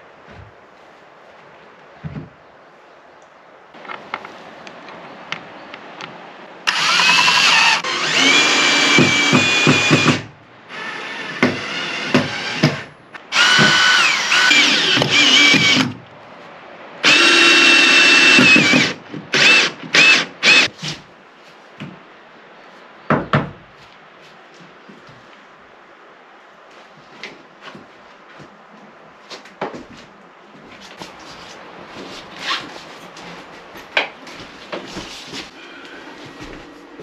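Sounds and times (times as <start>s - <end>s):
power drill whining: 6.7s - 16.0s, 17.0s - 20.7s.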